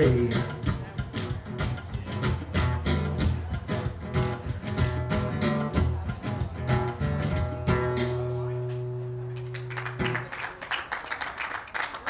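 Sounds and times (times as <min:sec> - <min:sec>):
acoustic guitar strumming: 0:00.1 - 0:09.4
applause: 0:09.3 - 0:12.0.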